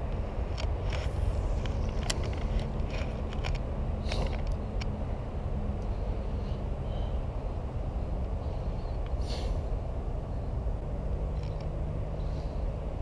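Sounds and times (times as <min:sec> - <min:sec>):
low outdoor rumble: 0:00.0 - 0:13.0
brief rustle: 0:00.5 - 0:04.6
faint hum: 0:03.9 - 0:13.0.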